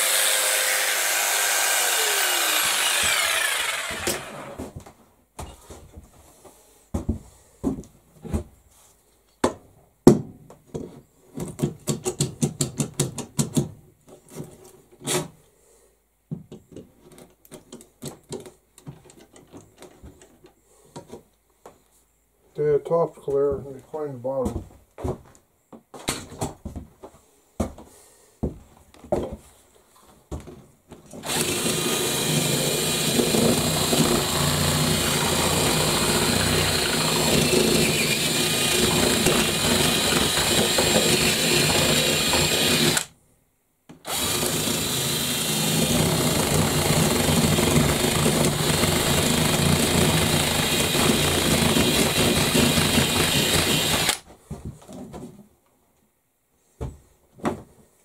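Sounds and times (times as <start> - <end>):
drill boring into wood: 0.0 - 4.6, 31.2 - 43.1, 44.0 - 54.2.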